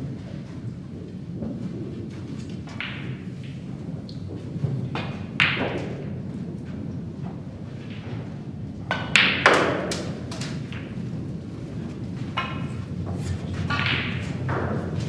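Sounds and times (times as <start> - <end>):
snooker balls clicking: 1.1 - 15.0
cue striking ball: 2.7 - 3.6, 5.0 - 6.1, 8.9 - 11.1, 12.3 - 12.8, 13.6 - 15.0.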